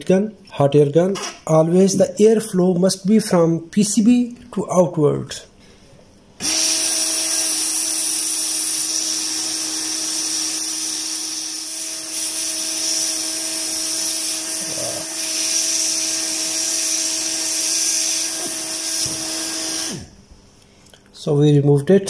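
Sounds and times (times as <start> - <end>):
hot air gun hissing: 6.4 - 20.2.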